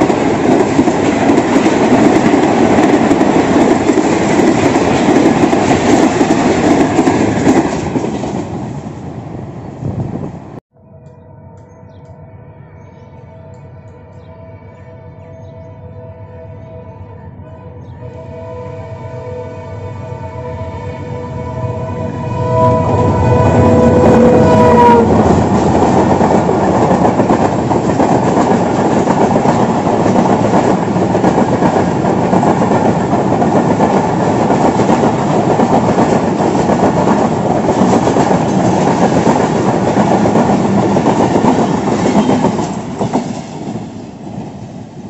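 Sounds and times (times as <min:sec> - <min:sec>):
train horn: 0:10.7 - 0:25.5, 0:41.4 - 0:42.8.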